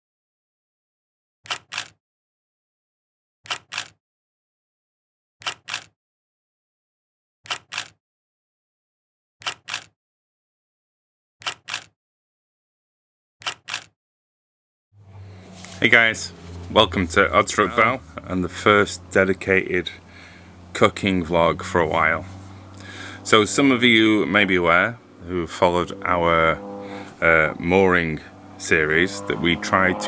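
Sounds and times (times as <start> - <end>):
sharp double clicks: 1.4 - 2.0, 3.4 - 4.0, 5.4 - 5.9, 7.4 - 8.0, 9.4 - 9.9, 11.4 - 11.9, 13.4 - 13.9.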